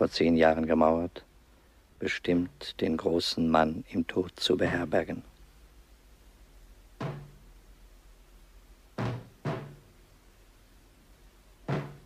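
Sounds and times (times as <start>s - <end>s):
knocks with low ring: 7.0s - 7.4s, 9.0s - 9.8s, 11.7s - 12.0s.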